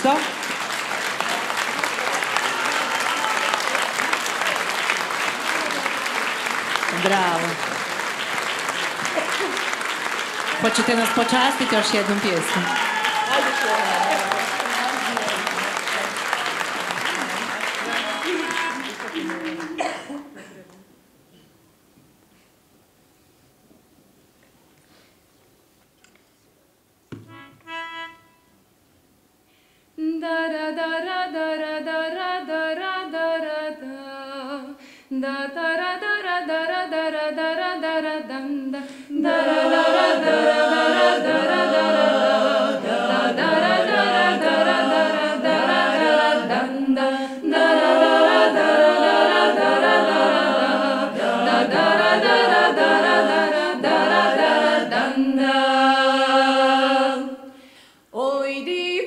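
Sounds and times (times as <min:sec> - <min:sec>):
two short notes: 0:27.1 - 0:28.5
women singing a cappella: 0:30.0 - 0:59.0.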